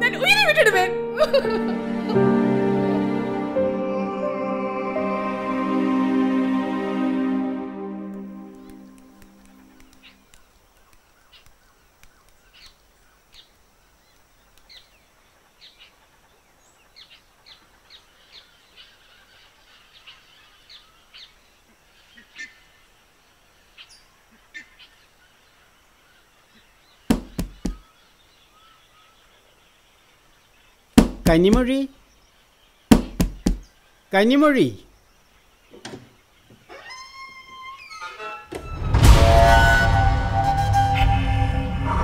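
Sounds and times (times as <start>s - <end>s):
birds chirping: 8.2s - 38.1s
knocks on a wooden door: 27.1s - 27.8s, 31.0s - 31.7s, 32.9s - 33.6s.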